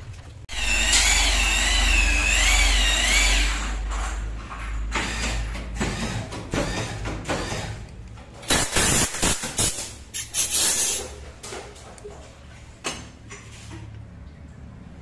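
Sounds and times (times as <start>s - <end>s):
milling machine humming: 0.5s - 3.6s
short loud hissing blasts: 8.5s - 11.1s.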